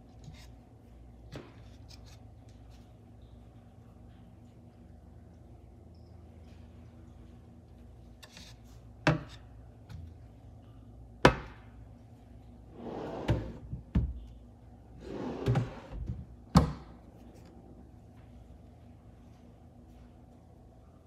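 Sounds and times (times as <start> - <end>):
wooden drawers sliding: 12.7 - 13.7, 15.0 - 16.2.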